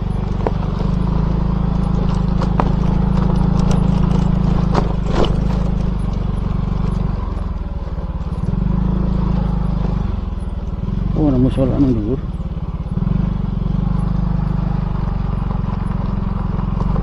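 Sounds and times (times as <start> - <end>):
motorcycle engine running: 0.0 - 17.0
knocks from the road: 2.0 - 6.2.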